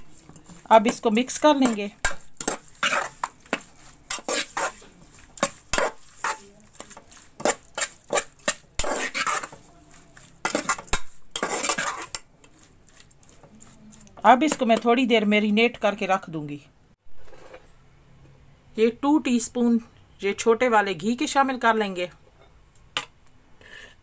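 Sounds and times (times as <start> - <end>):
metal spoon scraping pot: 0.0 - 14.9.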